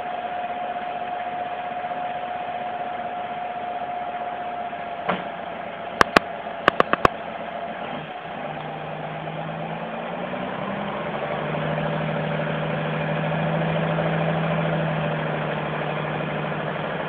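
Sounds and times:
diesel truck engine running: 0.0s - 17.0s
sharp clicks: 6.0s - 7.1s.

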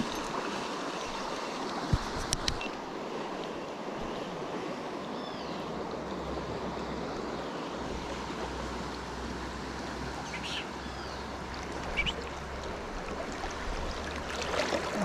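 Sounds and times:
river water rushing over rapid: 5.7s - 15.0s.

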